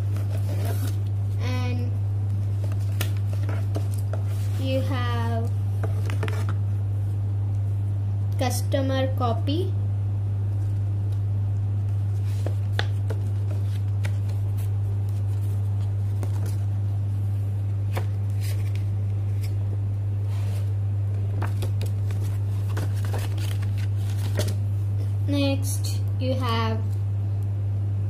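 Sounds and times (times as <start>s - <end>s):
paper rustling and crinkling: 0.0s - 1.2s, 2.3s - 4.9s, 5.8s - 6.6s, 11.9s - 16.8s, 17.9s - 19.6s, 21.3s - 25.2s
steady low hum: 0.0s - 28.0s.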